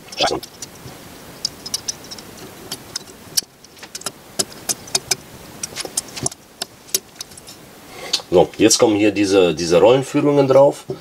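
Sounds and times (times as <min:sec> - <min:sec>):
small metal parts clicking: 0:01.4 - 0:07.6.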